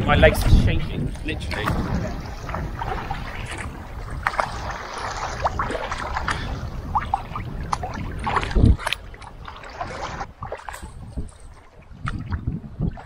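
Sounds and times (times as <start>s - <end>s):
water lapping against hull: 0.0s - 13.0s
wind rumble: 0.0s - 13.0s
paddle strokes splashing: 1.2s - 13.0s
thump against hull: 1.5s - 4.6s.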